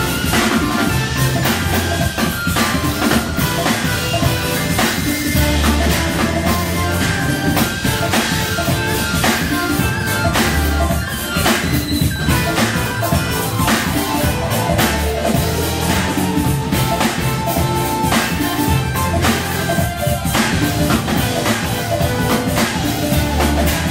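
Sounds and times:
drum kit beat: 0:00.0 - 0:23.9
electric guitar: 0:00.0 - 0:23.9
live band playing: 0:00.0 - 0:23.9
organ: 0:00.0 - 0:23.9.

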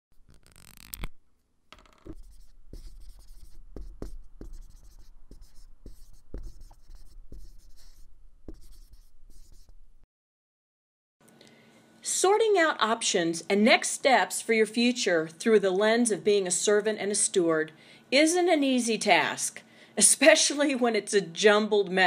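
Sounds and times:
marker pen scratching: 0:00.2 - 0:01.2, 0:01.8 - 0:09.9.

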